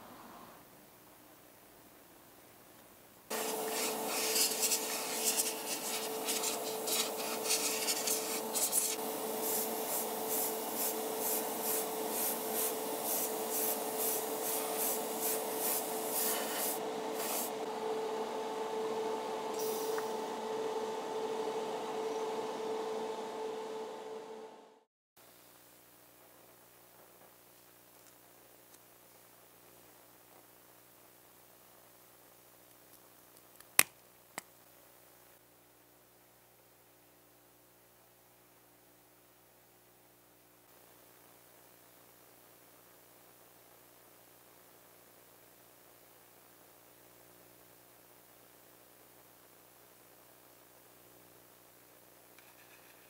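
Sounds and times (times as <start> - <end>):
airbrush hissing: 3.3 - 17.6.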